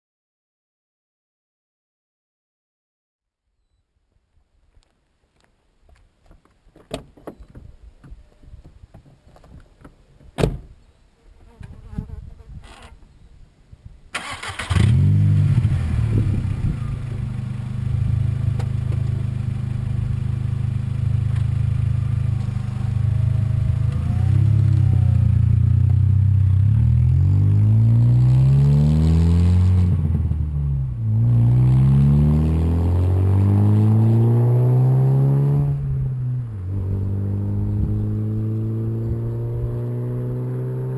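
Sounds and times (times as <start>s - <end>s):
car engine starting and revving: 14.2s - 40.9s.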